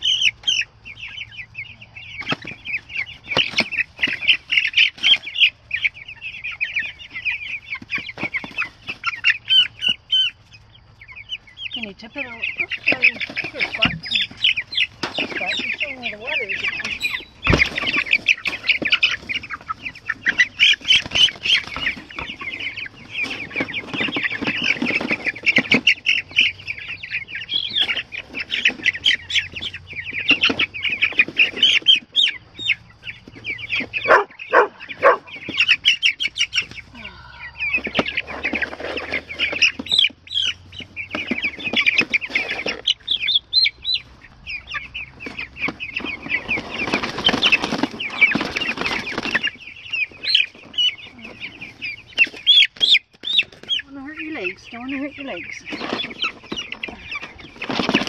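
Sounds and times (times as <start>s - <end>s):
chicks peeping: 0.0s - 58.0s
wings flapping: 17.5s - 26.6s, 45.2s - 50.7s, 55.7s - 58.0s.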